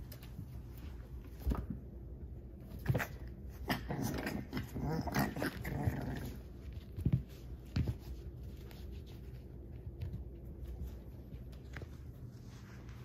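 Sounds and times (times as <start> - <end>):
puppy paws scratching on rug: 0.0 - 13.0
puppy growl: 2.9 - 6.6.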